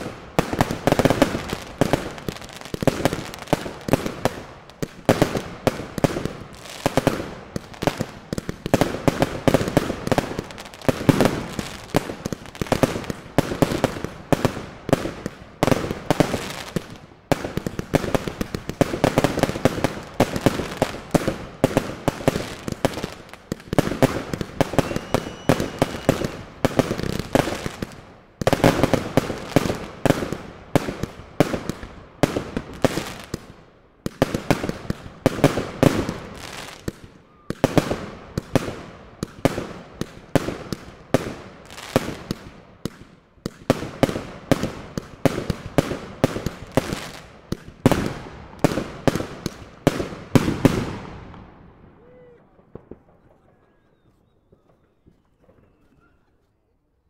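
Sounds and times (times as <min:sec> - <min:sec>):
fireworks bangs and cracks: 0:00.0 - 0:56.0.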